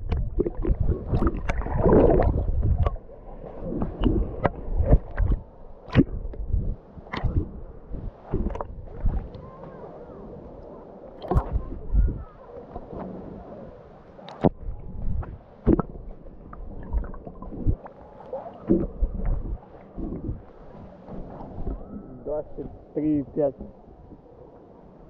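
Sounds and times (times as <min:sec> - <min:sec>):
seawater sloshing and splashing: 0:00.0 - 0:09.3
low rumble: 0:00.0 - 0:09.4, 0:18.7 - 0:22.9
faint voices: 0:09.3 - 0:13.6.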